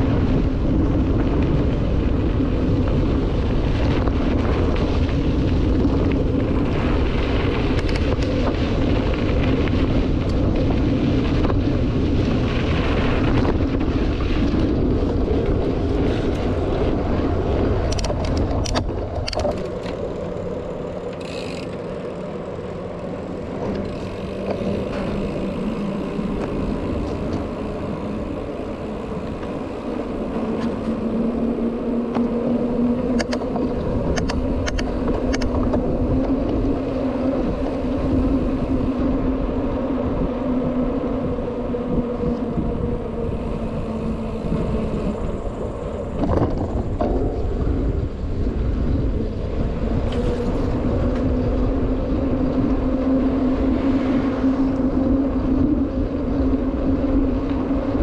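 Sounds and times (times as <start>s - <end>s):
vehicle droning hum: 0.0s - 58.0s.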